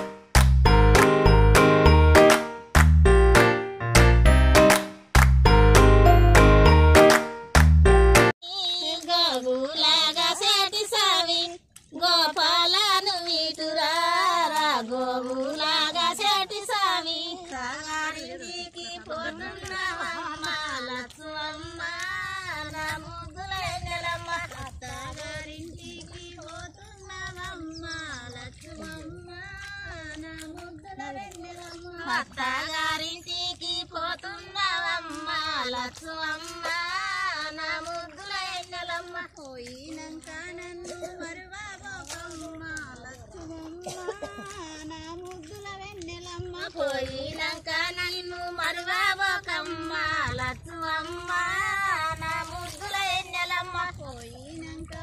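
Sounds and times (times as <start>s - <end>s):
women singing: 8.4s - 55.0s.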